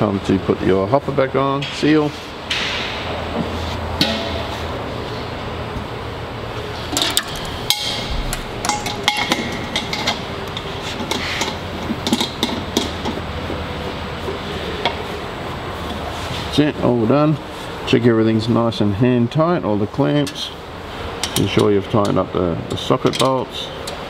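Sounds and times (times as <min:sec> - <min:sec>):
steady low hum: 0:00.0 - 0:22.8
metal clinks and taps: 0:07.0 - 0:13.0.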